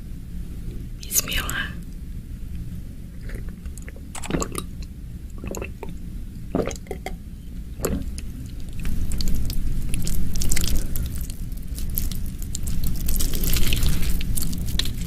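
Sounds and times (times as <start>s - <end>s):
gulping and swallowing water: 3.1s - 7.2s, 7.8s - 15.0s
mouth and handling noise: 3.1s - 7.2s, 7.8s - 15.0s.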